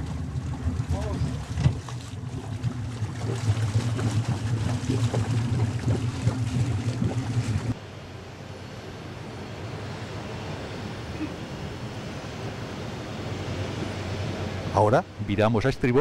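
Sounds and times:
boat engine idling: 0.0s - 7.8s
light wind: 0.0s - 16.0s
water: 0.0s - 16.0s.

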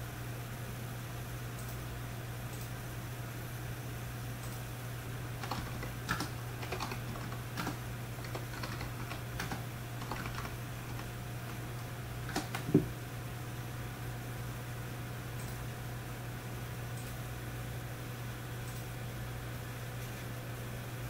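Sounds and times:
computer keyboard keystrokes: 5.4s - 12.9s.

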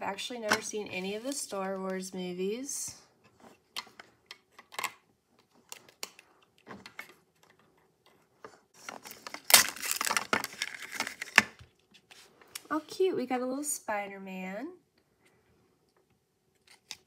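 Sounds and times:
plastic wrapper crinkling: 8.8s - 11.6s.

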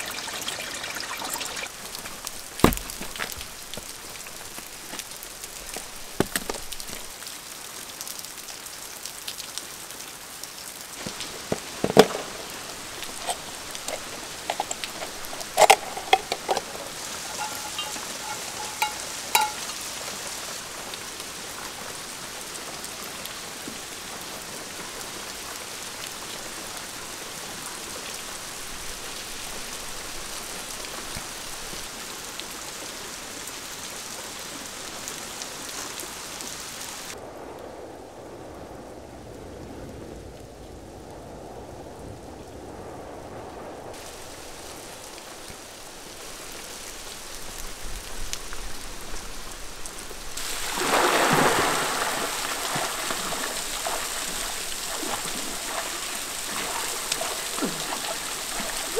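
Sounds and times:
falling water hiss: 0.0s - 37.9s, 42.7s - 58.9s
short ringing clinks: 13.2s - 19.8s.

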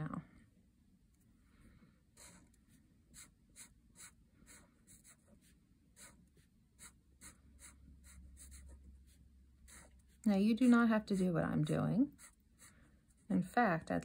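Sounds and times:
marker drawing on paper: 2.2s - 13.3s.

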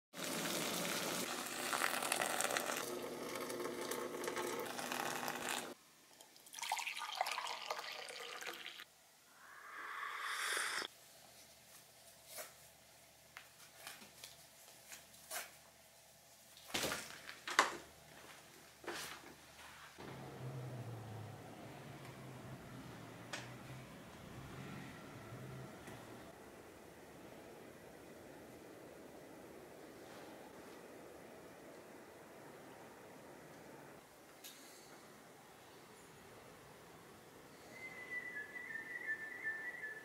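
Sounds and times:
coffee pouring into mug: 0.2s - 8.8s
water boiling in saucepan: 0.2s - 8.8s.

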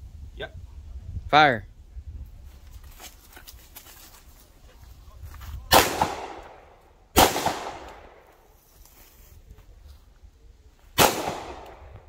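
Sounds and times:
pistol shots with ringing echo: 5.7s - 8.3s, 11.0s - 12.0s.

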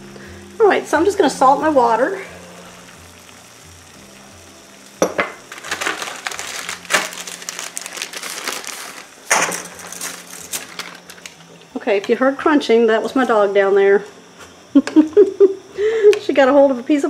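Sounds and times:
plastic bag crinkling: 5.4s - 11.4s
dog crunching dry pasta: 5.6s - 9.1s.

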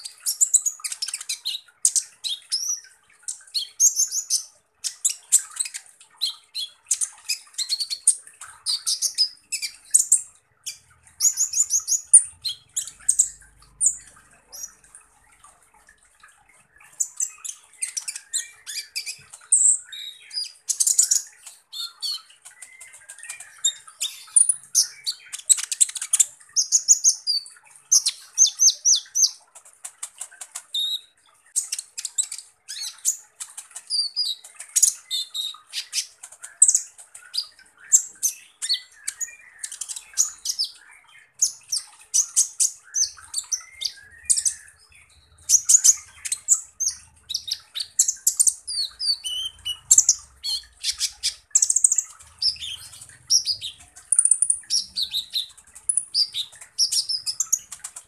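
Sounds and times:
bird singing harsh chips: 30.7s - 58.0s.

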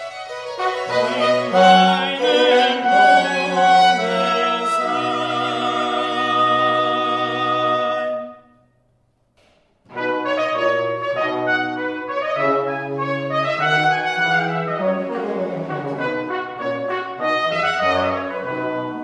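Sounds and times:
violins and basso continuo: 0.0s - 8.3s
tenor singing: 0.6s - 8.4s.

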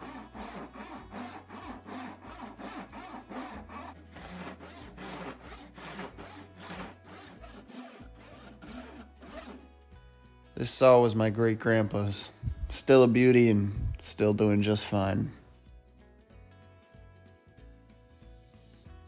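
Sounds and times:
handsaw cutting wood: 0.0s - 9.8s
faint background music: 0.0s - 19.0s.

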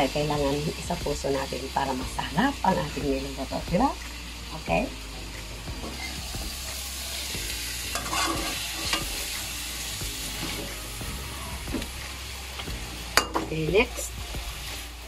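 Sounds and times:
food sizzling in a wok: 0.0s - 15.0s
metal spatula scraping pan: 7.8s - 9.4s.

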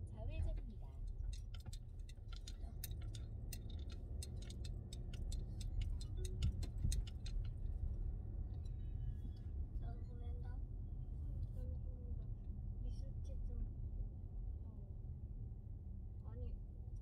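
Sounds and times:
car cabin rumble: 0.0s - 10.6s.

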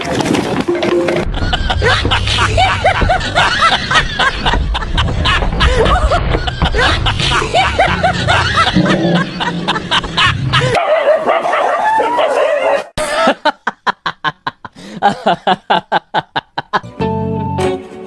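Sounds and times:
plucked music: 16.8s - 18.0s.

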